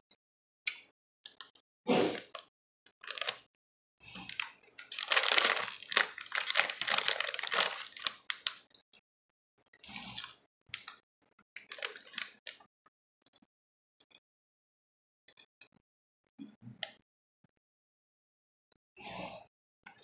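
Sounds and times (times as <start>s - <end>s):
foil chip bag crinkling: 3.0s - 3.4s, 4.2s - 8.6s, 10.0s - 10.9s, 11.6s - 12.6s
tortilla chips crunching: 3.0s - 3.4s, 4.2s - 8.6s, 11.6s - 12.6s.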